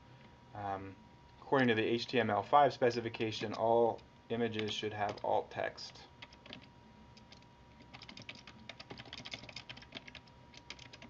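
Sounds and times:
computer keyboard typing: 0:04.6 - 0:05.3, 0:06.2 - 0:11.0.

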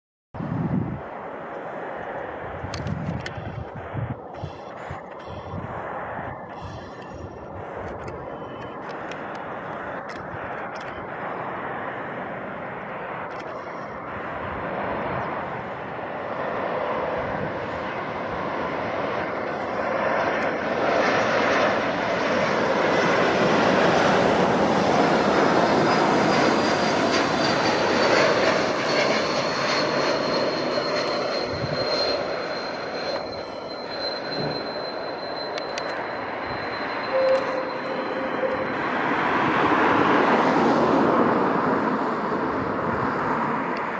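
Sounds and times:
jet airliner passing: 0:00.4 - 0:43.9
high whine sliding down: 0:28.1 - 0:40.0.

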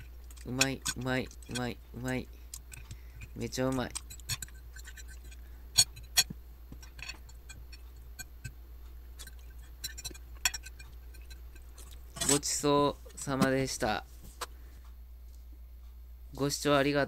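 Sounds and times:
cutlery scraping a ceramic plate: 0:00.0 - 0:01.7, 0:02.7 - 0:08.5, 0:09.2 - 0:13.5
low steady hum: 0:00.0 - 0:17.0.

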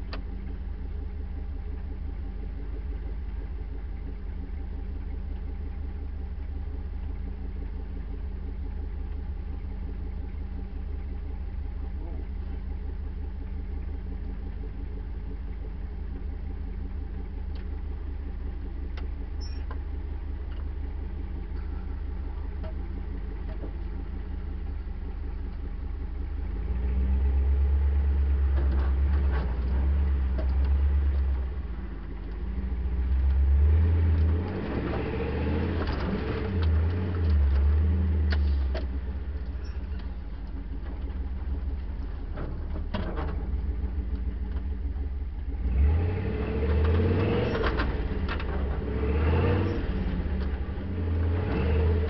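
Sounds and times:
engine idling and revving: 0:00.0 - 0:52.0
vehicle knocks and rattles: 0:28.5 - 0:31.4, 0:39.8 - 0:43.9.

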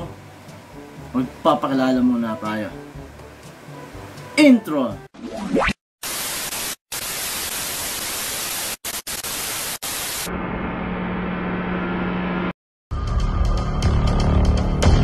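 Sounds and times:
television static hiss: 0:06.0 - 0:10.3.

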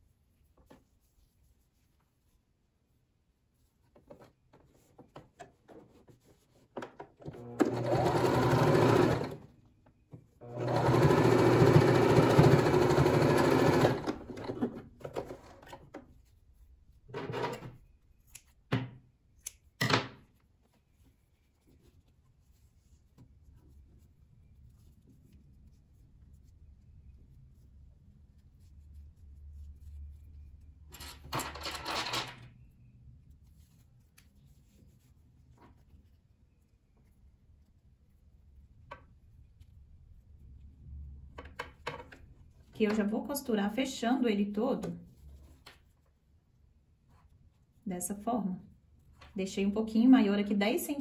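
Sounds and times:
sewing machine stitching: 0:07.2 - 0:09.5, 0:10.4 - 0:15.7.

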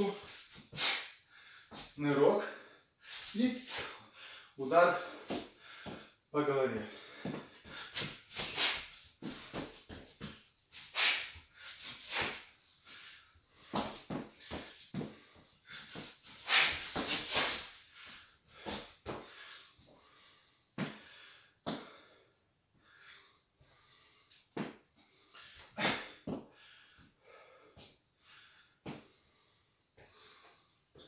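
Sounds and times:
man's sharp hissing exhales: 0:00.3 - 0:01.8, 0:03.0 - 0:04.5, 0:07.0 - 0:09.6, 0:10.8 - 0:21.2, 0:25.1 - 0:26.7.

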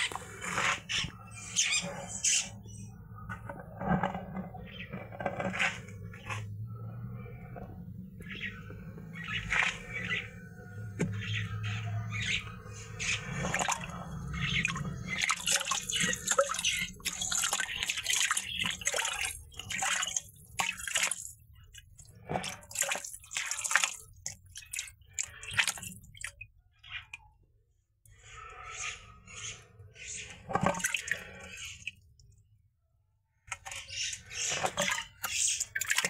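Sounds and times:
water splashing in a basin: 0:08.2 - 0:27.2, 0:30.3 - 0:32.4, 0:33.5 - 0:36.0.

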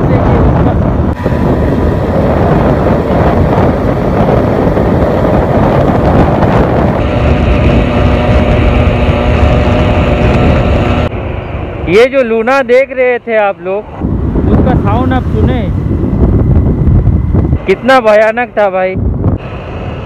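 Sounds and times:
wind noise on microphone: 0:00.0 - 0:11.8, 0:13.8 - 0:20.0
moped engine running: 0:01.2 - 0:11.5.

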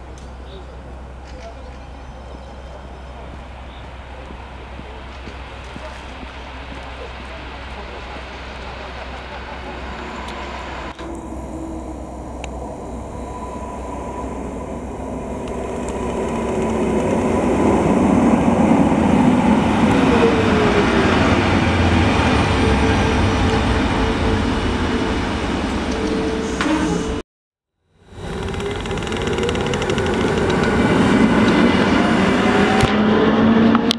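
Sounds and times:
electric train running past: 0:00.0 - 0:27.2, 0:28.0 - 0:33.9.

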